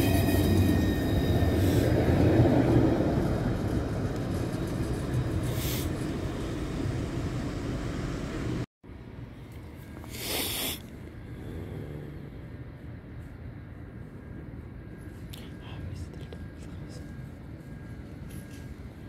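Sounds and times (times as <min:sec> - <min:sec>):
tram low rumble: 0:00.0 - 0:10.2, 0:10.8 - 0:19.0
short hiss: 0:10.1 - 0:10.8.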